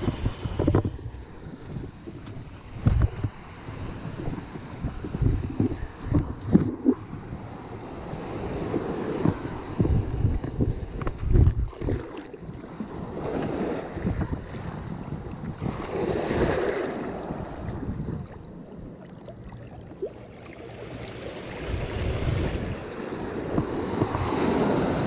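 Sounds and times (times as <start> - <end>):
wind rumbling on microphone: 0.0 - 25.0
ocean surf breaking on sand: 6.8 - 10.6, 12.0 - 18.0, 20.6 - 25.0.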